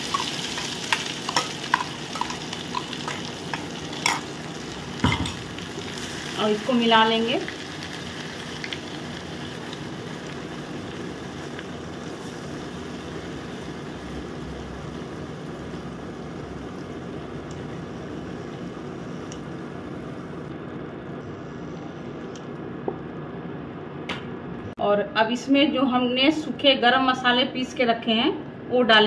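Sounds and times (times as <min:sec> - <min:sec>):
onion paste sizzling in oil: 0:00.0 - 0:20.5.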